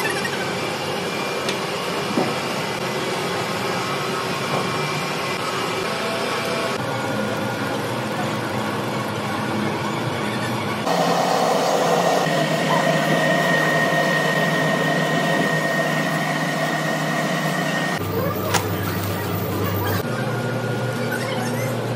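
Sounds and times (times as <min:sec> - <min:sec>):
conveyor machine whirring: 0:00.0 - 0:21.7.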